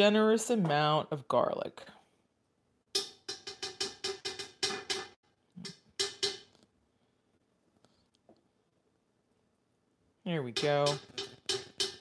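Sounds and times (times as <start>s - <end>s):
spoon knocking on steel pot: 3.0s - 6.6s, 10.5s - 12.0s.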